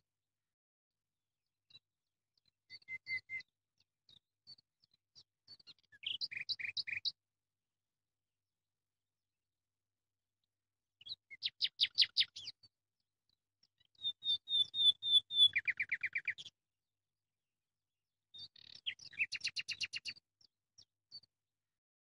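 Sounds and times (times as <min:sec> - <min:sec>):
songbird trilling: 0:14.0 - 0:16.4.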